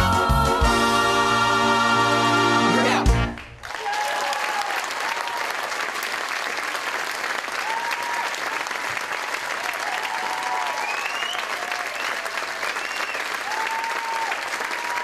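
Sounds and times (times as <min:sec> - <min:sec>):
stage musical ending chord: 0:00.0 - 0:03.7
audience applause: 0:03.3 - 0:15.0.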